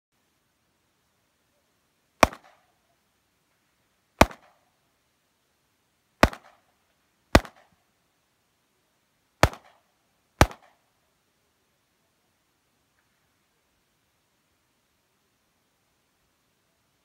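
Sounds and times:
pistol shots with echo: 0:02.2 - 0:02.6, 0:04.2 - 0:04.6, 0:06.2 - 0:06.6, 0:07.4 - 0:07.7, 0:09.4 - 0:09.8, 0:10.4 - 0:10.8.

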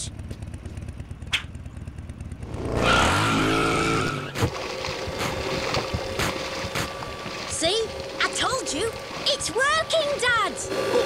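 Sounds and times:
cartoon motorcycle engine revving: 0:00.0 - 0:06.9, 0:07.6 - 0:11.0.

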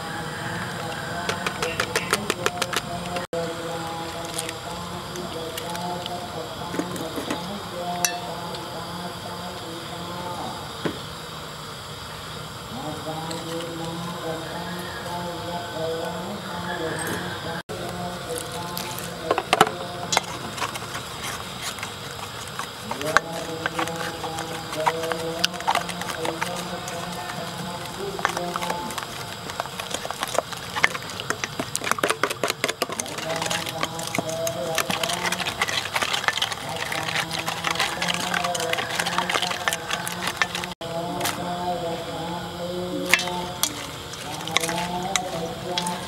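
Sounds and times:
spatula scraping metal bowl: 0:00.2 - 0:03.3, 0:16.9 - 0:41.5, 0:43.0 - 0:46.0
wet batter slapping: 0:01.0 - 0:03.3, 0:20.1 - 0:40.8.

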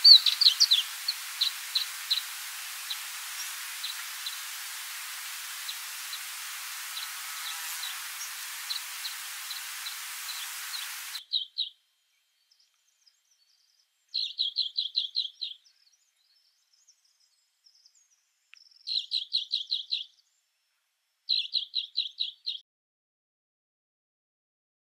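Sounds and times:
steady hiss with faint ticking: 0:00.0 - 0:11.2
songbird singing: 0:00.0 - 0:22.6.

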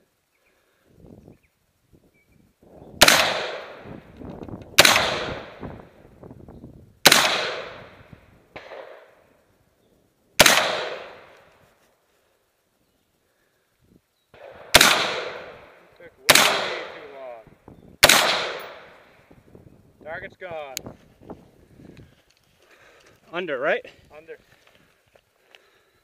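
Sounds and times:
rifle shots: 0:03.0 - 0:03.9, 0:04.7 - 0:05.7, 0:07.0 - 0:09.2, 0:10.4 - 0:11.4, 0:14.4 - 0:17.3, 0:18.0 - 0:19.1.

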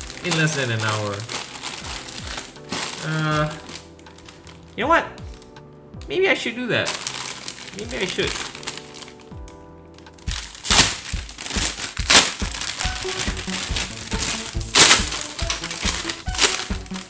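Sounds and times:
plastic bags crinkling: 0:00.0 - 0:05.5, 0:06.8 - 0:17.0
background music: 0:00.0 - 0:17.0.

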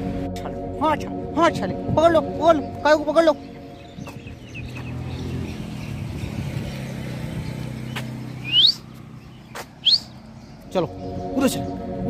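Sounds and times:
vehicle engine rumble: 0:00.0 - 0:12.0
bird rising chirp: 0:02.5 - 0:12.0.

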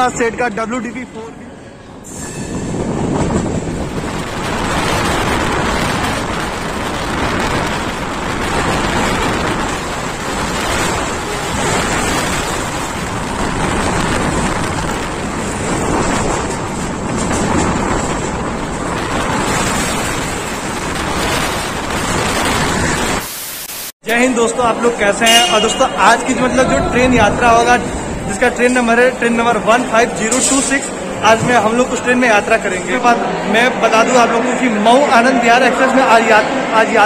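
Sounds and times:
train rail noise: 0:00.0 - 0:37.0
wind buffeting microphone: 0:01.9 - 0:23.2, 0:25.4 - 0:33.5.

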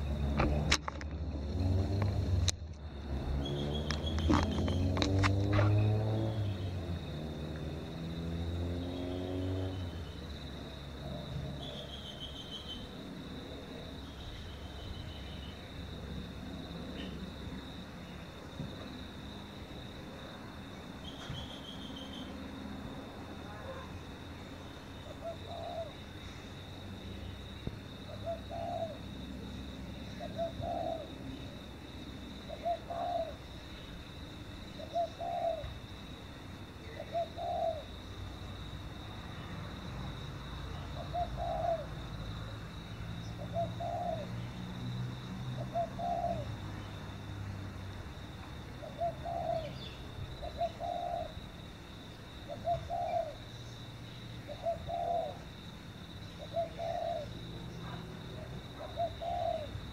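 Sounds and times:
dove cooing: 0:25.0 - 0:26.1, 0:28.1 - 0:29.2, 0:30.1 - 0:31.6, 0:32.4 - 0:33.5, 0:34.8 - 0:35.9, 0:36.8 - 0:38.1, 0:40.8 - 0:42.2, 0:43.4 - 0:44.4, 0:45.5 - 0:46.6, 0:48.8 - 0:51.4, 0:52.4 - 0:53.5, 0:54.5 - 0:55.6, 0:56.3 - 0:59.9.

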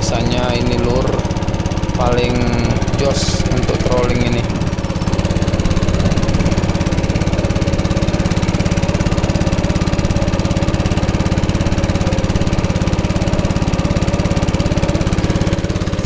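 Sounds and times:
small boat engine running: 0:00.0 - 0:16.0.

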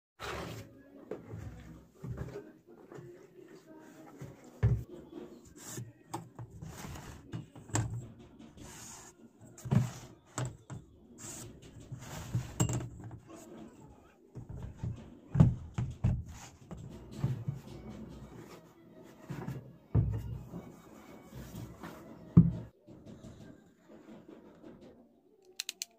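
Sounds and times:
ruler rubbing and scraping: 0:00.2 - 0:00.7, 0:05.1 - 0:13.7.

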